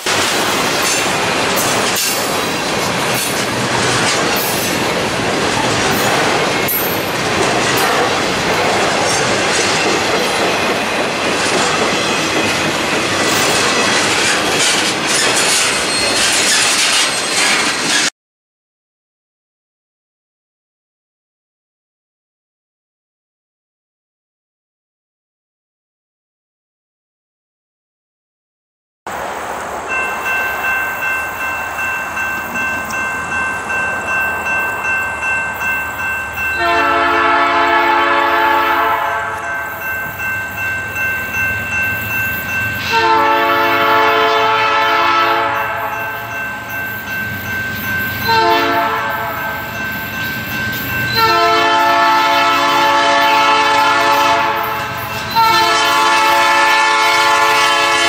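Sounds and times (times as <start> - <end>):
train rumbling: 0.0 - 18.1, 29.1 - 58.0
train air horn blasts: 36.6 - 39.4, 42.9 - 46.0, 48.3 - 49.6, 51.2 - 58.0.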